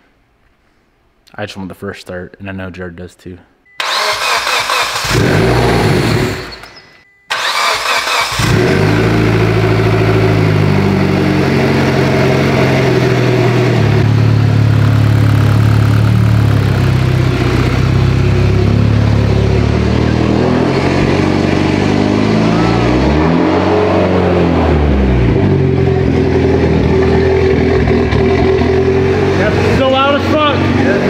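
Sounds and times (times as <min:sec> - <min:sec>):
engine starter cranking: 0:03.8 - 0:08.9
car engine idling: 0:07.4 - 0:31.0.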